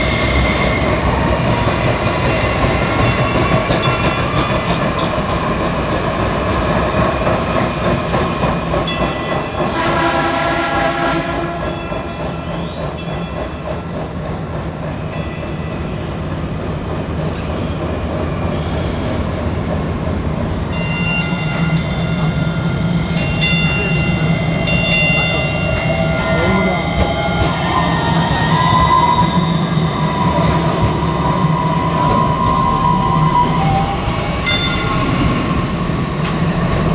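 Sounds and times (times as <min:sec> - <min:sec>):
train motors and wheels rumbling: 0:00.0 - 0:36.9
train horn: 0:09.7 - 0:11.8.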